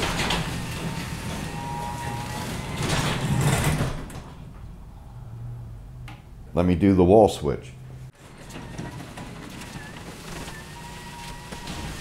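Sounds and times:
garage door opener motor hum: 0:00.0 - 0:04.8, 0:08.1 - 0:12.0
garage door rolling up tracks: 0:00.0 - 0:05.0, 0:08.1 - 0:12.0.

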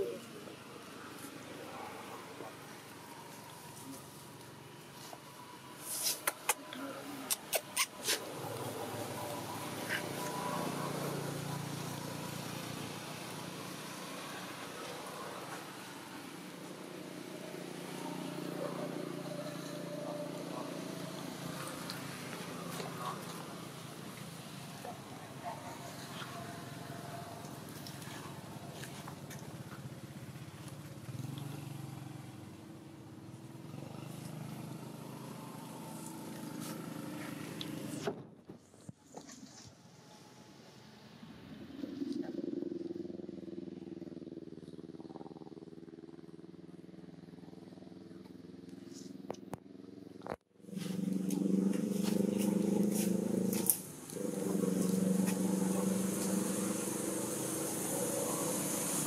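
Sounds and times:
small engine running: 0:07.9 - 0:38.1, 0:42.8 - 0:59.0
low motor drone: 0:50.6 - 0:59.0.

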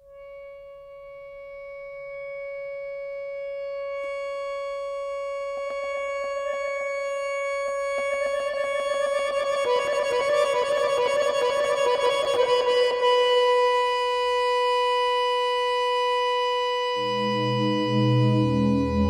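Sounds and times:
accordion holding notes: 0:16.9 - 0:19.0.

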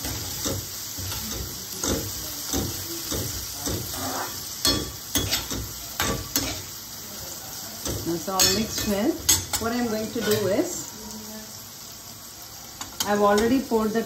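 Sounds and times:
spatula scraping a pan: 0:00.0 - 0:06.8, 0:08.0 - 0:10.8
vegetables sizzling in oil: 0:00.0 - 0:14.0
spatula clinking against pan: 0:04.6 - 0:06.6, 0:07.8 - 0:10.5.

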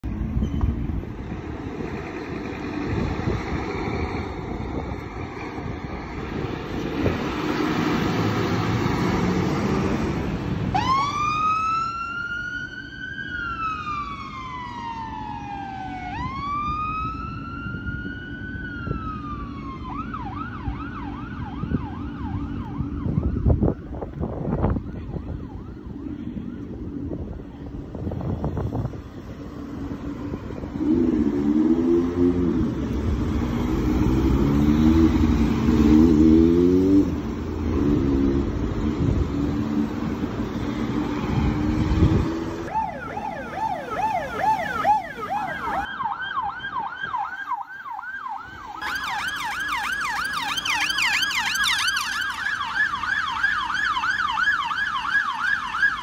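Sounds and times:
engine and road noise: 0:00.0 - 0:56.0
fire engine siren wailing and yelping: 0:10.7 - 0:28.9, 0:41.3 - 0:56.0.

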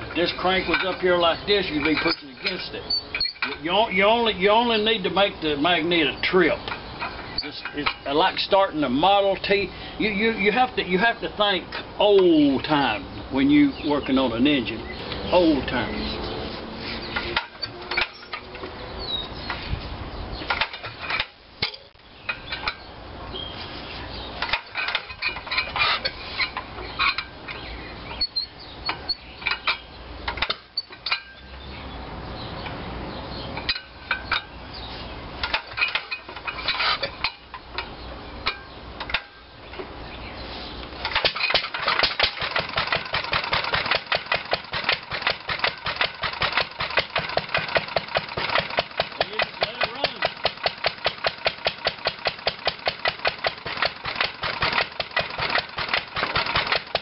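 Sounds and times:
engine being hand-cranked: 0:00.0 - 0:04.0, 0:15.7 - 0:18.8, 0:24.4 - 0:31.4, 0:35.4 - 0:39.4, 0:40.9 - 0:57.0
engine running: 0:41.1 - 0:57.0.

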